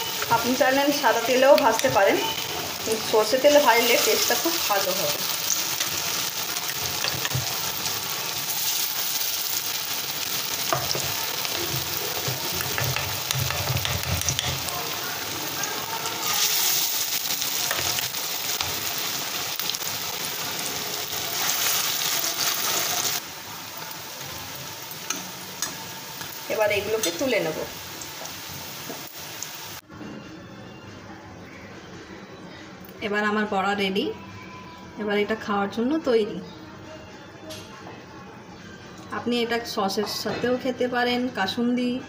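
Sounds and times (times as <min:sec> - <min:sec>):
fritters sizzling in hot oil: 0:00.0 - 0:29.8.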